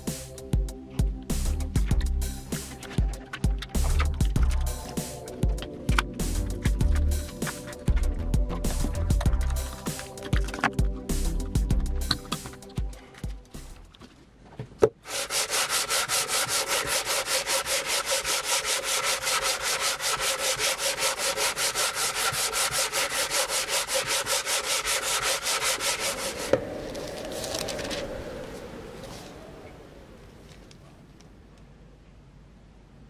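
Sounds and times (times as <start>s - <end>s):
sanding block scratching wood: 2.4s - 5.6s, 6.2s - 10.6s, 15.0s - 26.6s.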